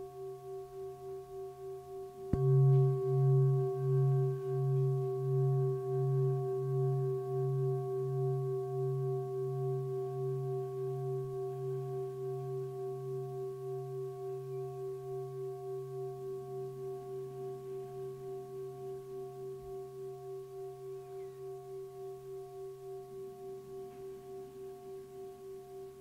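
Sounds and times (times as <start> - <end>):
singing bowl ringing: 0.0 - 26.0.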